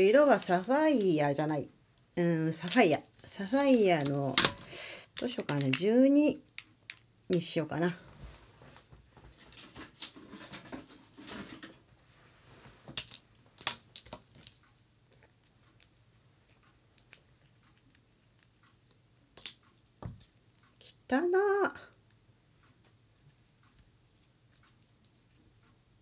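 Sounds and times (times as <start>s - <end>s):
soft rustling: 8.0s - 13.0s.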